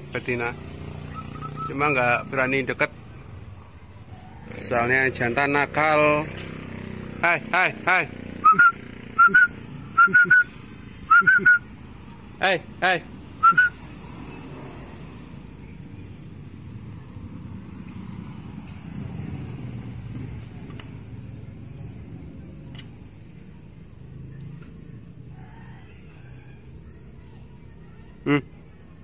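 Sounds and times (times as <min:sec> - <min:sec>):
passing vehicle rumble: 0:00.0 - 0:29.0
person whistling: 0:01.1 - 0:01.8, 0:08.4 - 0:11.7, 0:13.4 - 0:13.8.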